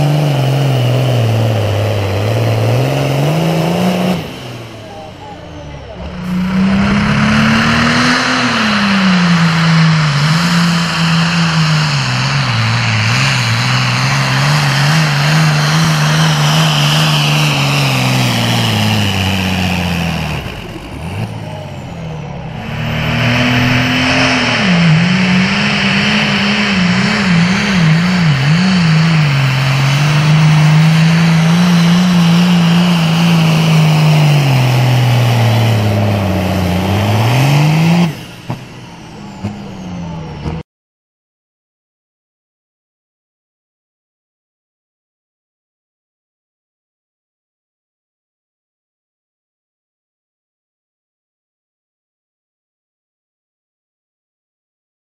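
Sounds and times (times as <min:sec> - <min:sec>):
tractor diesel engines roaring: 0:00.0 - 0:40.6.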